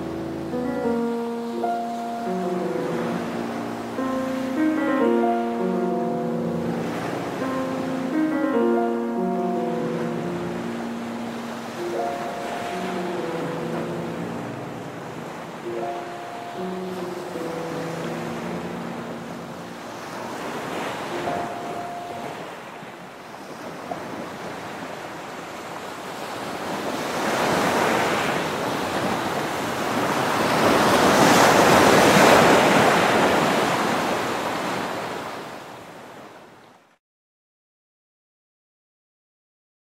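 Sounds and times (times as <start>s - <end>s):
ocean waves washing in: 0.0s - 36.6s.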